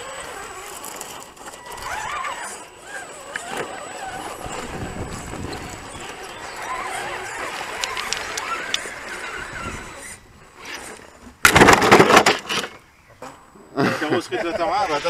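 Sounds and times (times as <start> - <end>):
electric motors whining: 0.0 - 11.4.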